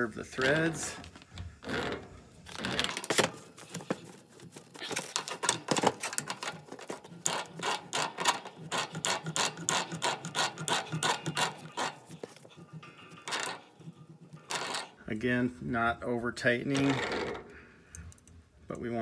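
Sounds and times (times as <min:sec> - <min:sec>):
metal pipe threads clicking: 0:04.9 - 0:15.0.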